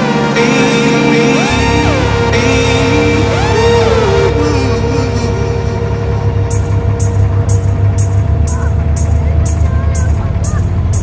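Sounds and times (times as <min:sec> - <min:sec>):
low bass: 0:00.0 - 0:11.0
synth chords with swooping glides: 0:00.0 - 0:11.0.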